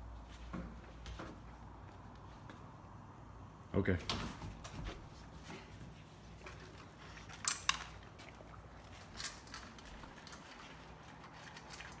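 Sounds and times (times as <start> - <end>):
dog eating from bowl: 6.4 - 12.0.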